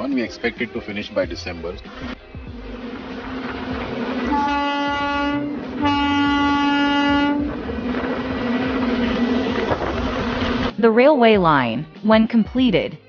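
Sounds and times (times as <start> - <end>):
low rumble: 1.6 - 10.7
truck horn blasts: 2.5 - 10.6.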